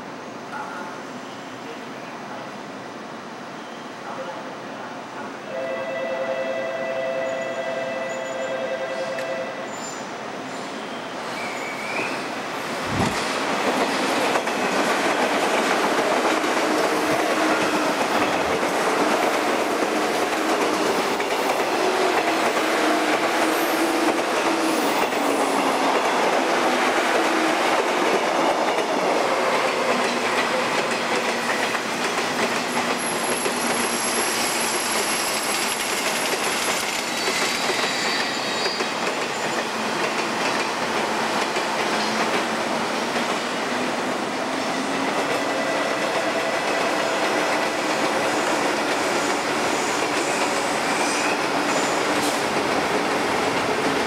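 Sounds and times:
electric trains running past: 0.0s - 54.0s
high-pitched wheel squeal: 10.8s - 12.2s, 37.0s - 39.6s.

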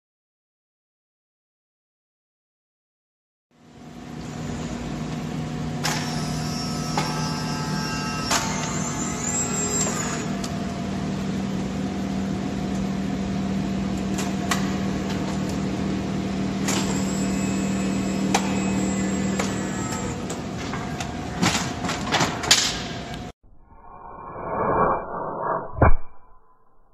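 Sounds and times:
higher whirring tone: 23.4s - 26.9s.

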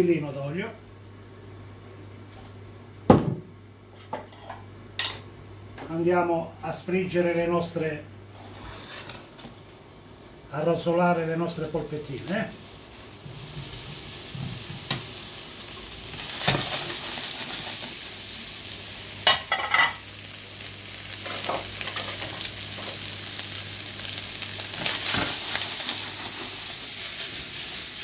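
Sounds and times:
meatballs sizzling in a pan: 11.2s - 28.0s.

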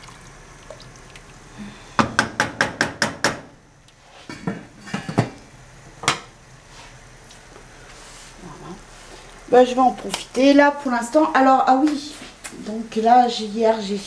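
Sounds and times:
wooden spoon knocking on pot: 2.0s - 3.5s.

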